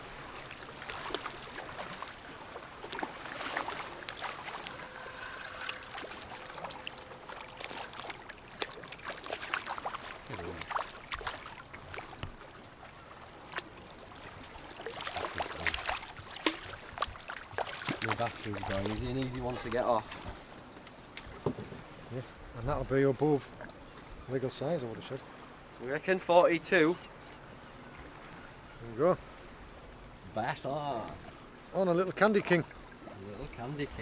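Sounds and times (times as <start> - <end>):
lapping water: 0.0 - 21.4
fish thrashing splashes: 2.8 - 12.2, 14.6 - 19.0.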